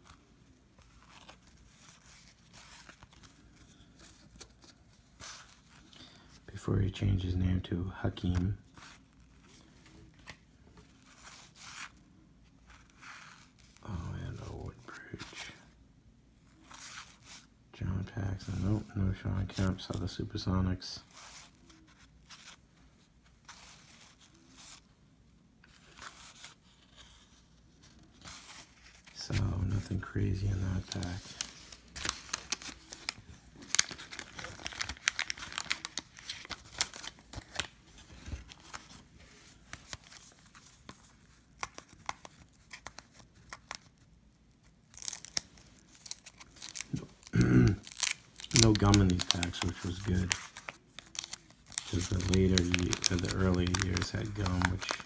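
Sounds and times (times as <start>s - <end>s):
cards rustling and clicking: 0.0s - 6.4s, 25.7s - 44.1s, 44.8s - 55.0s.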